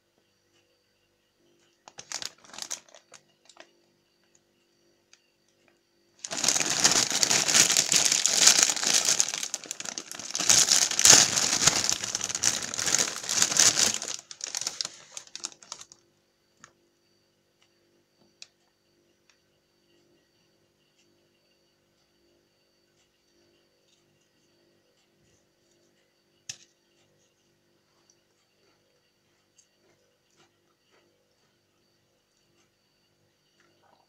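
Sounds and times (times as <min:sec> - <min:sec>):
plastic snack bag crinkling: 0:01.9 - 0:03.7, 0:06.2 - 0:16.0.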